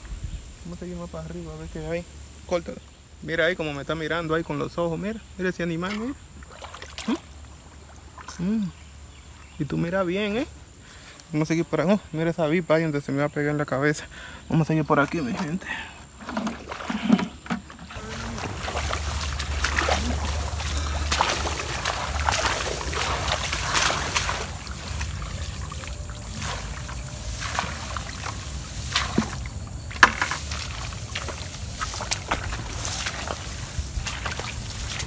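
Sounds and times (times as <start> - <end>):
wind buffeting microphone: 0.0 - 0.6
grass rustling and crackling: 14.7 - 35.0
footsteps and snaps: 17.0 - 35.0.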